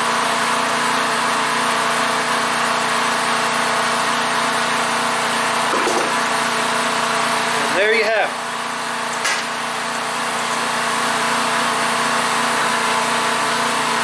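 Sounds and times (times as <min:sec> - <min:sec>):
generator engine droning: 0:00.0 - 0:14.0.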